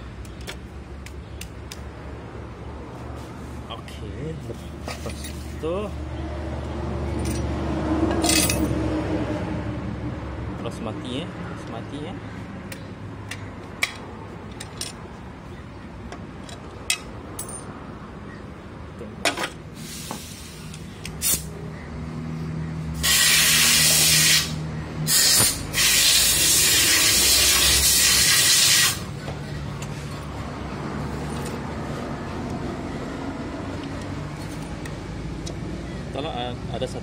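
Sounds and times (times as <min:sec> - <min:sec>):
pressurised spray hissing: 0:23.0 - 0:29.0.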